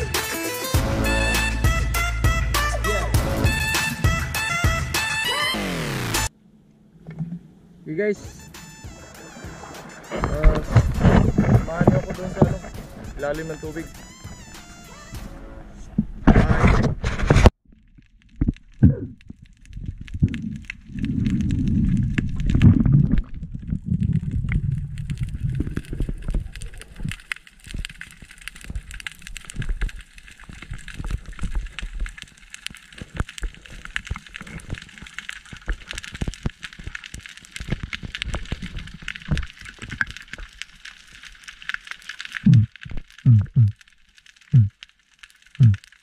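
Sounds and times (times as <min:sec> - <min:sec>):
muffled underwater water rushing: 0:17.6 - 0:44.7
sharp crackling clicks: 0:17.7 - 0:46.0.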